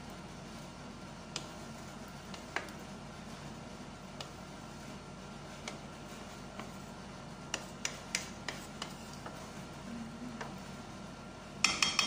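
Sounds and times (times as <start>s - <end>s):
spoon knocking against metal pot: 11.6s - 12.0s.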